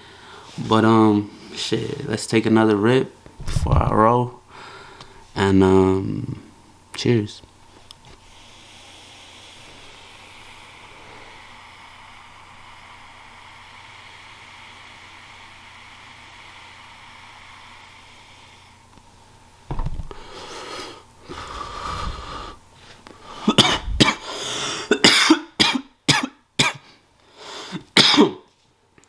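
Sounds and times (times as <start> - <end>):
man exhaling breathily: 8.2 - 18.8, 20.1 - 24.9
man coughing: 23.4 - 26.8, 27.9 - 28.5.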